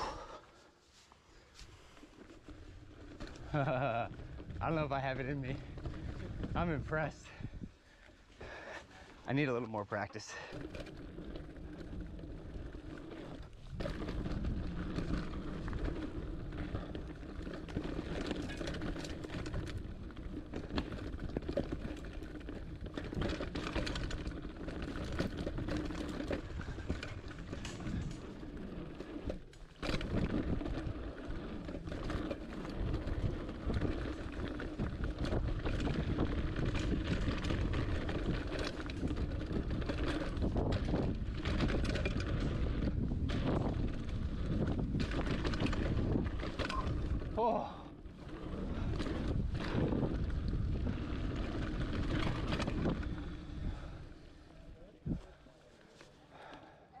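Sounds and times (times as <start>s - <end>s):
bike tyres rolling over stones: 0.0s - 56.7s
bike rattling over bumps: 1.6s - 56.6s
wind noise on microphone: 4.3s - 7.8s, 11.2s - 54.3s, 55.0s - 55.4s.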